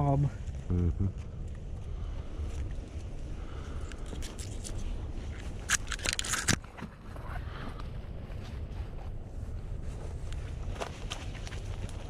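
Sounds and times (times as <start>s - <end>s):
twigs scraping clothing: 3.9s - 6.7s
leaves crackling underfoot: 7.5s - 12.0s.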